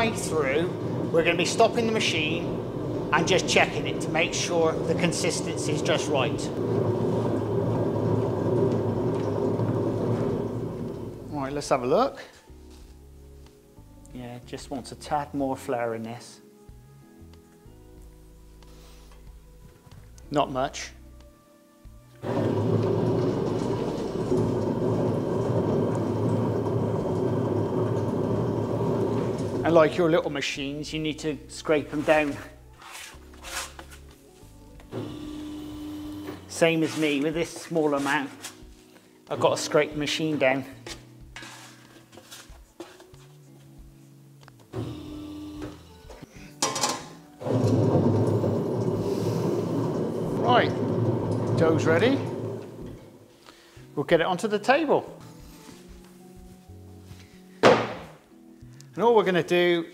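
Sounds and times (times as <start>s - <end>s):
dough mixer humming: 0.0s - 11.3s, 22.2s - 29.7s, 35.0s - 36.4s, 47.5s - 53.0s.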